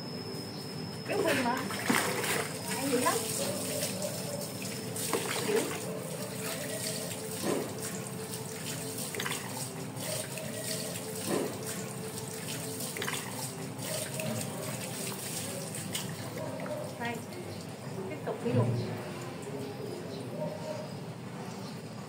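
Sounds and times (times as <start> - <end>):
water running into plastic basin: 1.2 - 18.7
water splashing on dog's coat: 1.4 - 17.4.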